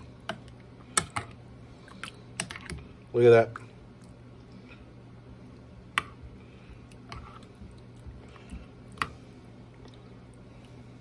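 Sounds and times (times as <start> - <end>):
faint steady hum: 0.0 - 11.0
spoon stirring thick sauce: 5.8 - 10.1.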